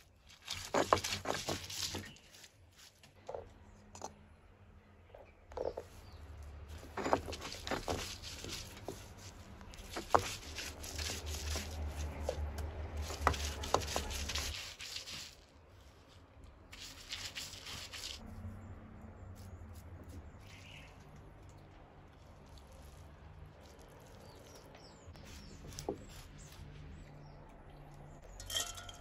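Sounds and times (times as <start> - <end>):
stone roller scraping grinding stone: 0.3 - 2.3, 5.5 - 15.4.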